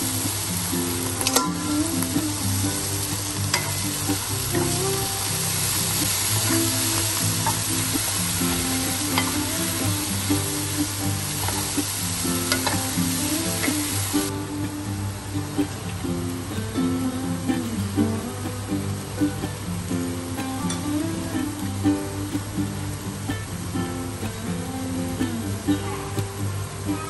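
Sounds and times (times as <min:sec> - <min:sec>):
food sizzling in a wok: 0:00.0 - 0:16.8, 0:17.5 - 0:25.0
background music: 0:01.1 - 0:15.8.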